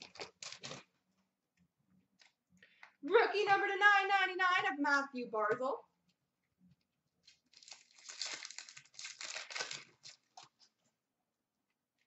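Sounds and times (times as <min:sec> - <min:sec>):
foil wrapper crinkling and tearing: 0:00.0 - 0:00.9, 0:07.2 - 0:10.7.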